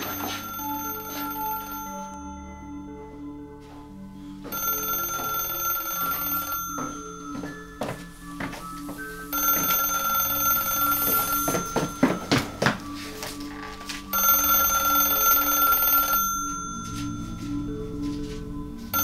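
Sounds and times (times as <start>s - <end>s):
high ringing tones: 0.0s - 19.0s
low drone: 16.8s - 19.0s.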